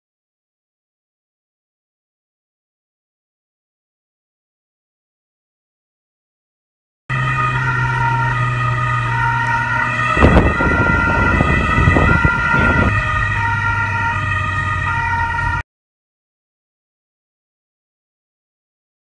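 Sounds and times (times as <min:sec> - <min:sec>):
police car siren: 0:07.1 - 0:15.6
vehicle engine noise: 0:07.1 - 0:15.6.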